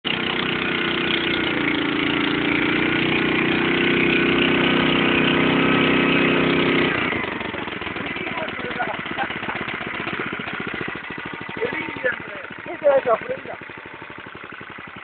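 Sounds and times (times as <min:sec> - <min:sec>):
tiller engine running: 0:00.0 - 0:15.0.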